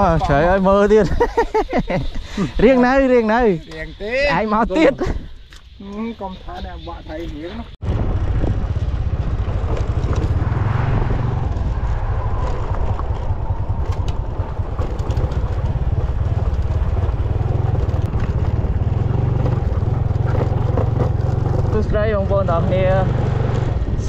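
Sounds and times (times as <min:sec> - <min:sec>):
motorcycle engine running: 0:07.8 - 0:24.0.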